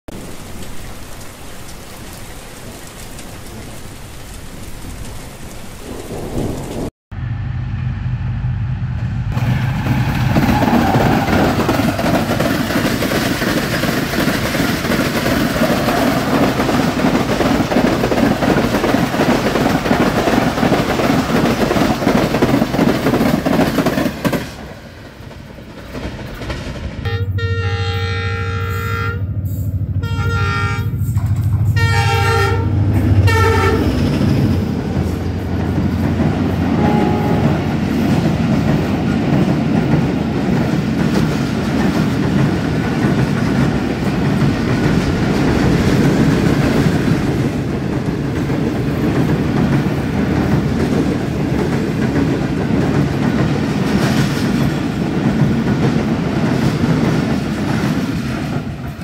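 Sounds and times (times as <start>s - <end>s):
steady rushing noise: 5.7s - 27.1s
train wheels rushing on rails: 5.8s - 27.5s, 28.7s - 59.0s
locomotive horn blast: 27.0s - 34.0s, 36.7s - 37.7s.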